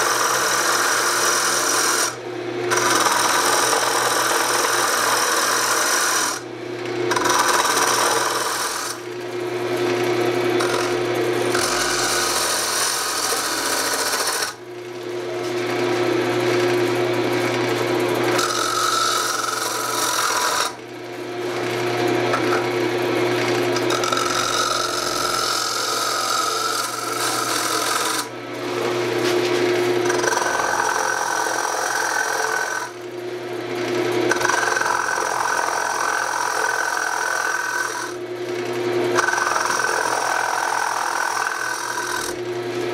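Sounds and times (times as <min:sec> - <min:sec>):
cutting tool scraping wood: 0:00.0 - 0:06.4, 0:07.1 - 0:09.1, 0:09.9 - 0:14.6, 0:18.3 - 0:20.8, 0:23.4 - 0:33.0, 0:34.3 - 0:38.2, 0:39.1 - 0:42.4
lathe motor humming: 0:00.0 - 0:42.9.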